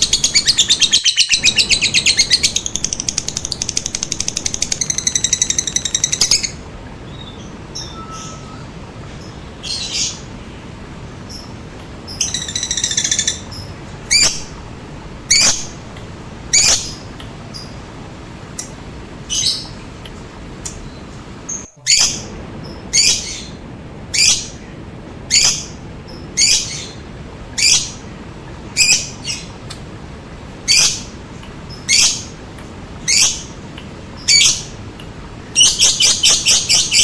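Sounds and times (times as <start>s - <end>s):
bird chattering trill: 0.0s - 6.6s
steady background hiss: 0.0s - 37.0s.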